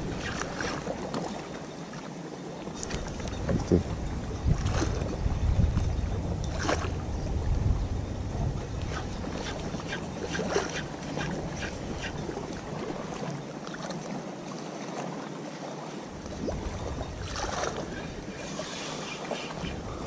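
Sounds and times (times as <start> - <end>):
wind rumbling on microphone: 0.0 - 1.4, 2.7 - 13.5, 16.1 - 20.0
open water: 0.0 - 20.0.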